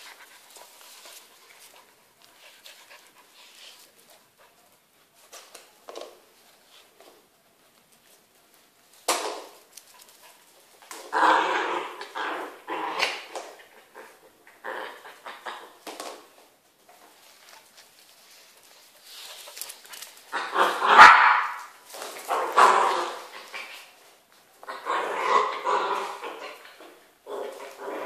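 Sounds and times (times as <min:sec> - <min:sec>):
dogs panting and sniffing: 0:00.0 - 0:05.2.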